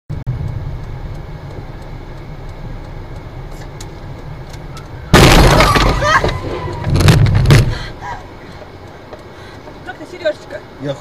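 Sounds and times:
car cabin rumble: 0.2 - 11.0
faint ticks: 0.3 - 5.0, 8.0 - 11.0.

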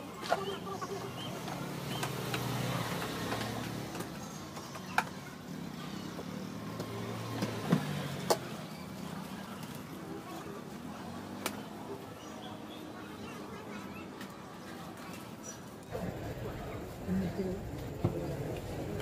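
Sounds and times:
vehicle engine passing: 1.3 - 4.2.

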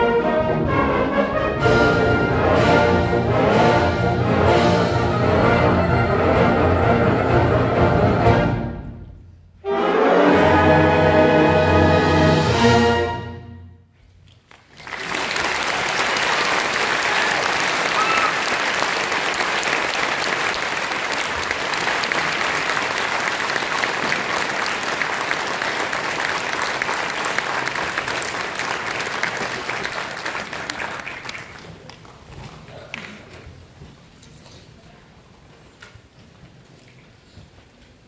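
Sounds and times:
audience applause: 14.3 - 33.4.

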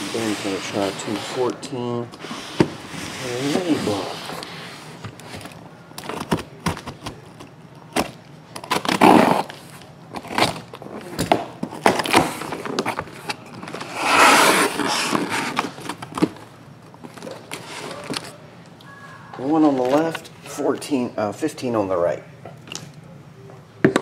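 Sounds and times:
cardboard tearing: 8.0 - 9.6, 13.7 - 16.0
scraping along packing tape: 8.6 - 10.8, 13.7 - 15.9.

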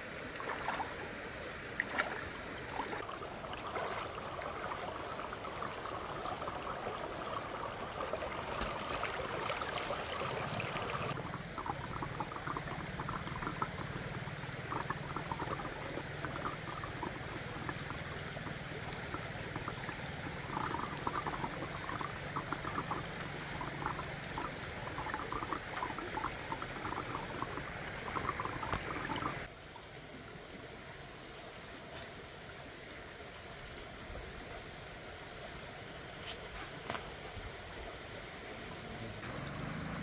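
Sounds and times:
water running and bubbling: 0.0 - 29.5
insects chirping in pulsed trills: 1.9 - 36.2, 36.8 - 39.2.

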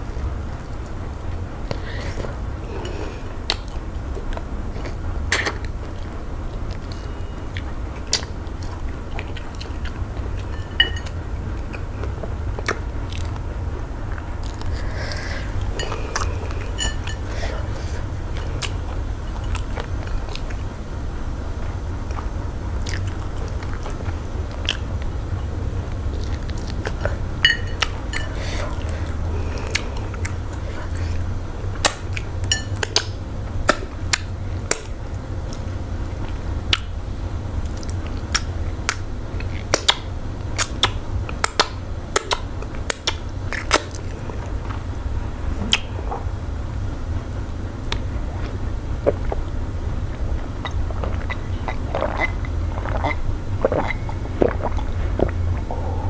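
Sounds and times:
steady low hum: 0.0 - 56.0
person chewing: 1.7 - 20.8, 21.6 - 36.9, 47.8 - 49.5, 50.1 - 56.0
wet mouth smacks: 45.7 - 45.9.

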